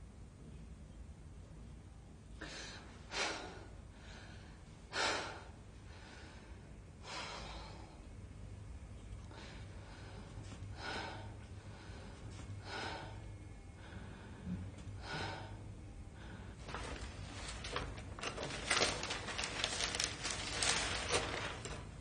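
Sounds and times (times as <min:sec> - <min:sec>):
woman breathing heavily: 0:02.4 - 0:08.1, 0:09.2 - 0:17.8.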